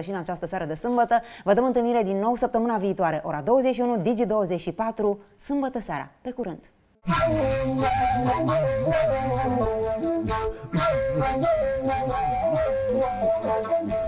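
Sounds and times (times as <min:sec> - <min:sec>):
instrumental theme music: 0:07.0 - 0:14.0.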